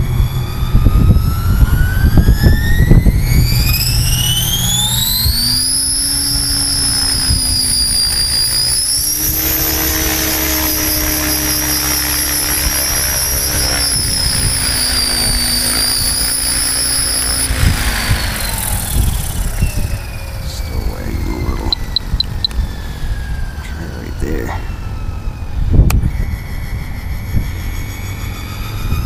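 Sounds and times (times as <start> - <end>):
rc helicopter motor whining: 0.0 - 29.0.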